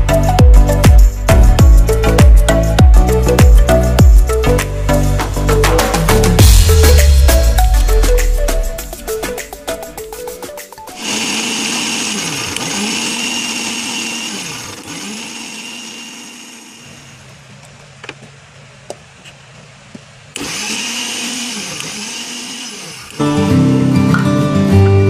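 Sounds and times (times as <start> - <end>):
mixer grinder whining: 10.9 - 17.4, 20.4 - 23.4.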